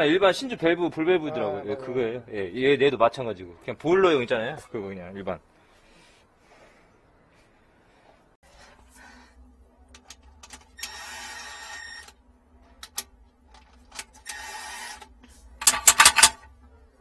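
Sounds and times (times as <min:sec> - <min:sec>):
cordless impact driver running: 0:14.3 - 0:15.1.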